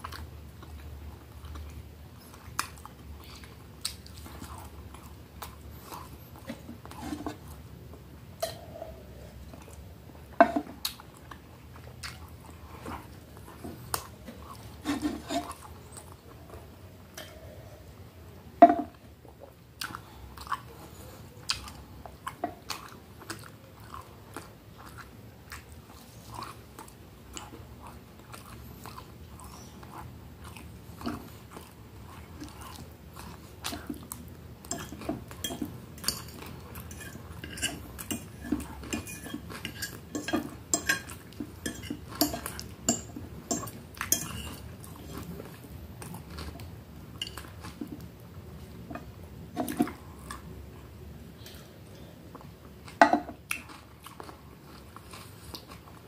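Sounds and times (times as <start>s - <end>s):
cutlery clinking on dish: 34.7s - 45.2s.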